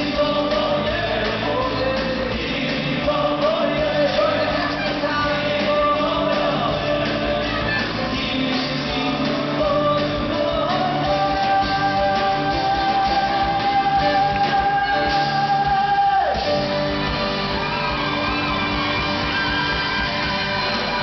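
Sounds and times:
man singing into a microphone: 0.0s - 16.6s
live band playing: 0.0s - 21.0s.

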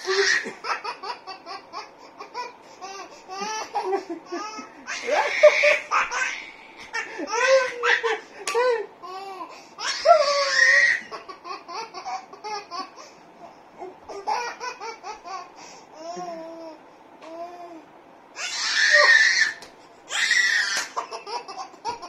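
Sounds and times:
baby laughing: 0.0s - 13.1s, 13.8s - 16.4s, 20.4s - 22.0s.

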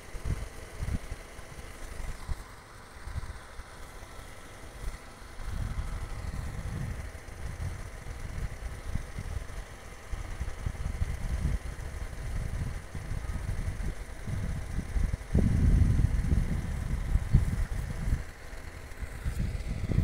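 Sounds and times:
wind buffeting microphone: 5.4s - 18.4s, 19.0s - 20.0s.

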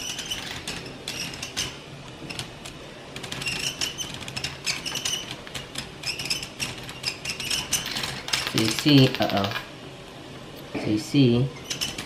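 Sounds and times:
plastic gears clicking and rattling: 0.0s - 9.7s.

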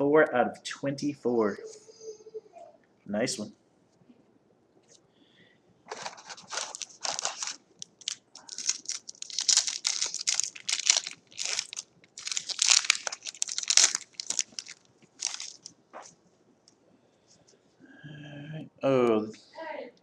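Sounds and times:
wrapper tearing and crinkling: 5.9s - 15.8s.

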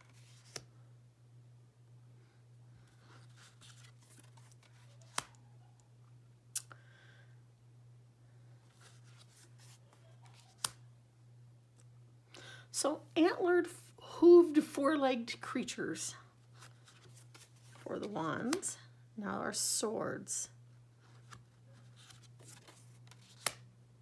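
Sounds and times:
cards sliding rustle: 0.0s - 0.7s, 2.8s - 5.3s, 8.6s - 10.8s, 16.4s - 18.7s, 21.0s - 23.7s
faint low hum: 0.0s - 24.0s
cards snapping onto pile: 5.0s - 5.3s, 10.3s - 10.8s, 22.4s - 23.6s.

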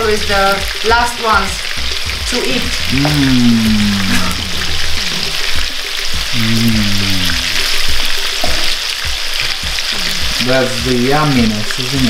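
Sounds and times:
meatballs sizzling in oil: 0.0s - 12.0s
low held note: 2.7s - 5.4s.

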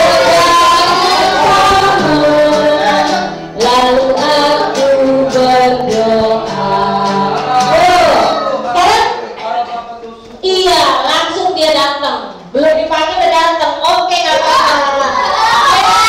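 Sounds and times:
voices singing held notes: 0.0s - 10.2s.

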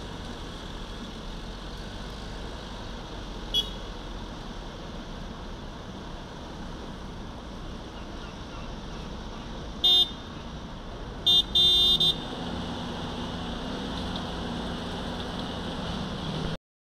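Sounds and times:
roadworks machinery rumble: 0.0s - 16.6s
traffic: 0.0s - 16.6s
vehicle horn honking: 3.5s - 3.9s, 9.8s - 10.2s, 11.2s - 12.3s.

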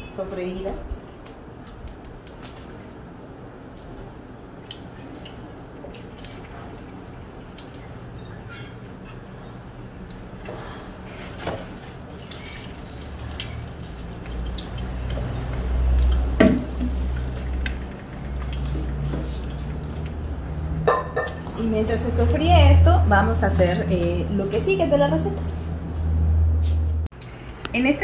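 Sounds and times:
glass bowl knocking on pot: 20.8s - 21.5s.

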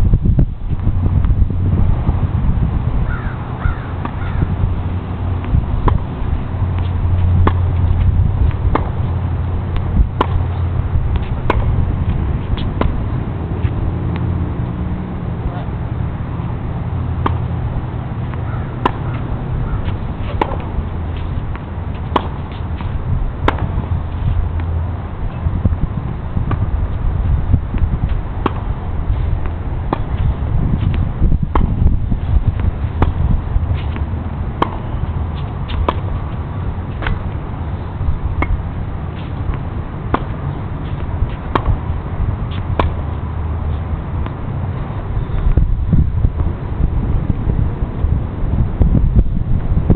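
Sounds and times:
low rumble: 0.0s - 49.9s
tennis ball hit by rackets: 3.2s - 4.4s, 5.2s - 14.7s, 17.2s - 24.7s, 26.4s - 26.7s, 27.7s - 37.6s, 38.3s - 43.2s.

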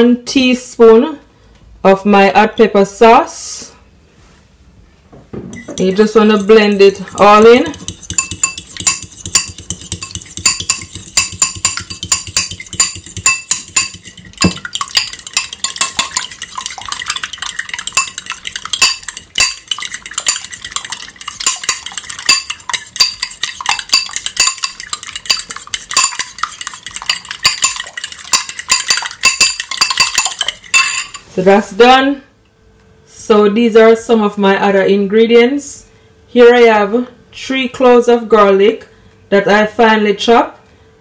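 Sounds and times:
fork clinking against bowl: 5.5s - 31.3s.

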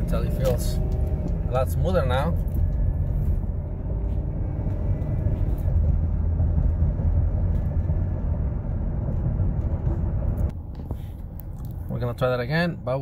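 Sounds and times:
car engine and road noise: 0.0s - 13.0s.

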